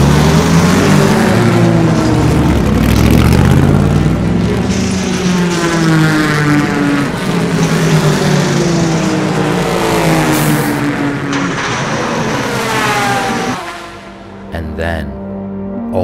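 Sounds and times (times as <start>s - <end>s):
race cars passing at speed: 0.0s - 14.5s.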